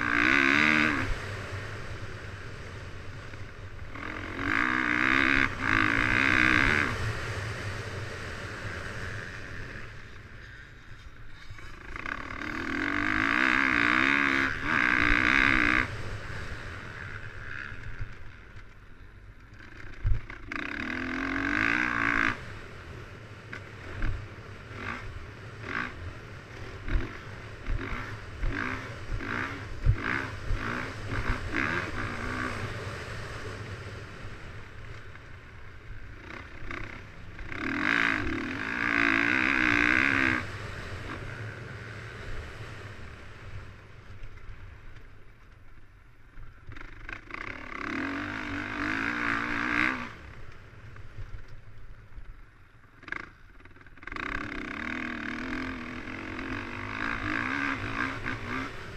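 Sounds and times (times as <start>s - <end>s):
dirt bike engine revving: 0.0s - 18.7s, 19.6s - 43.7s, 46.6s - 50.6s, 53.0s - 58.9s.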